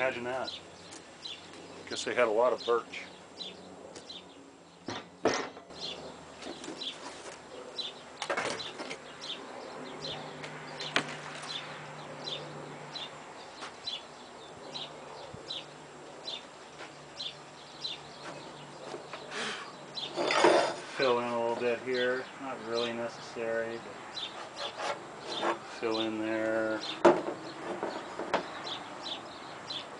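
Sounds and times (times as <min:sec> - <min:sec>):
bird chirping: 0:00.0 - 0:29.9
wood scraping rustle: 0:06.4 - 0:07.5, 0:18.2 - 0:21.8, 0:24.2 - 0:26.5, 0:27.1 - 0:28.6
knock on wooden panel: 0:27.0 - 0:28.5.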